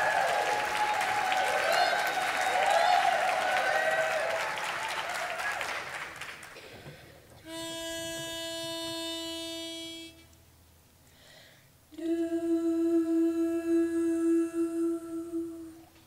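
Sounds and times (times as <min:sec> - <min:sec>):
women humming a note: 0:07.4 - 0:10.3, 0:11.9 - 0:15.8
pitch pipe note: 0:07.4 - 0:10.4.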